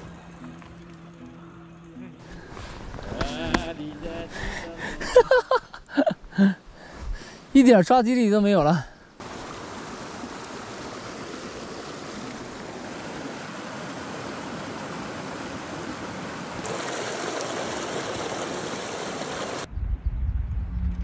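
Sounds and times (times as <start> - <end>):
stream rushing over rocks: 9.2 - 19.7.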